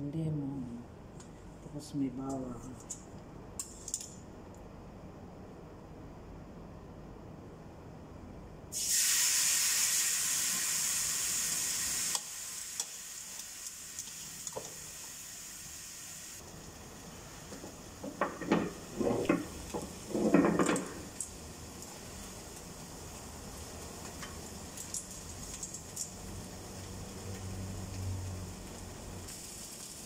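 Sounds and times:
chicken sizzling in a grill pan: 8.7 - 30.0
metal scraping and knocking on pan: 17.5 - 21.1.

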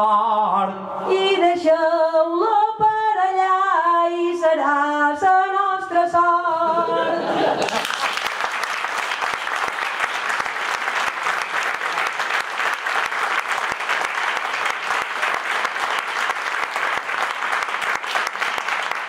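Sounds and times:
audience applauding: 7.5 - 19.0.

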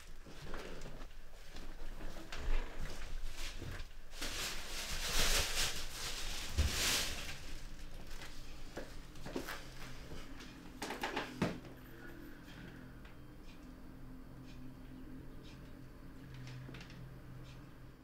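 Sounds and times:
rustling and handling: 0.0 - 11.8.

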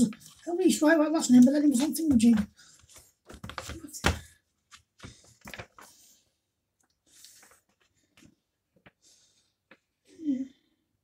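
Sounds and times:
paper pages turning: 2.7 - 3.9, 4.7 - 6.2, 7.1 - 9.0.

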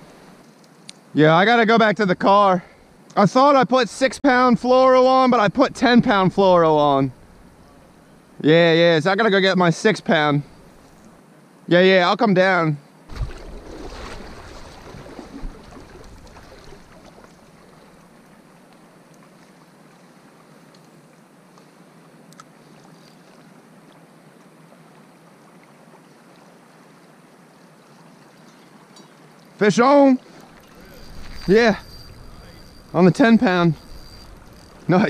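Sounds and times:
creek water flowing: 13.1 - 35.0.

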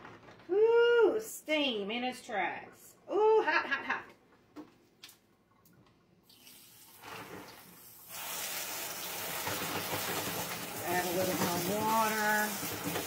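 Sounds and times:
faucet water rushing: 6.2 - 13.0.

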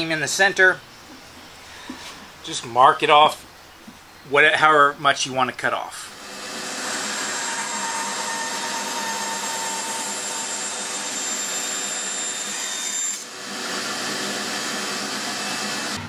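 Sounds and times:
bandsaw cutting wood: 6.1 - 16.0.

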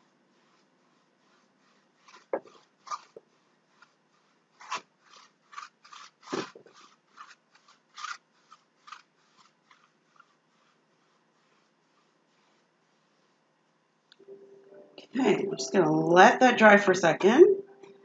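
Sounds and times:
paintbrush swishing on canvas: 0.0 - 13.8.

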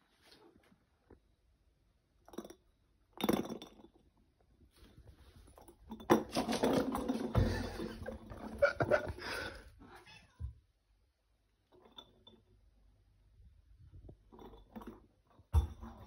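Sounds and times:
ball hitting tile floor: 5.9 - 9.2, 14.8 - 16.0
cat scrambling on floor: 6.2 - 8.0.

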